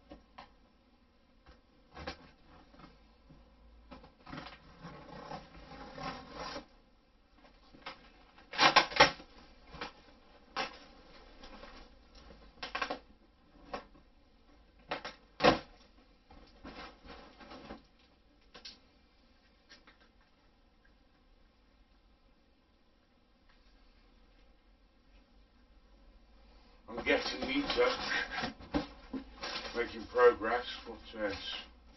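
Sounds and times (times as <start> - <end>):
cardboard scraping and rustling: 4.0 - 6.7, 16.4 - 17.8, 26.9 - 31.6
packing tape peeling: 8.5 - 9.2.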